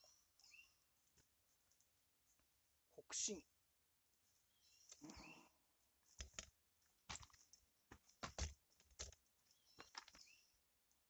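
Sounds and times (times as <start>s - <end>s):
plastic pot clicking and crackling: 6.1s - 9.2s.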